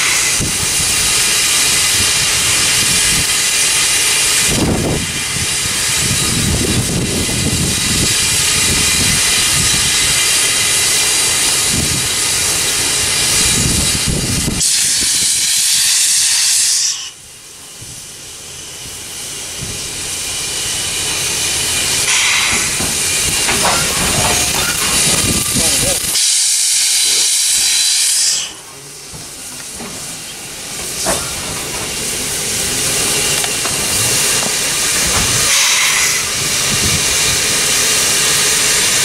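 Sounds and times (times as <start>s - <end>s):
louder higher steam hiss: 0.0s - 39.0s
steam hissing: 0.0s - 39.0s.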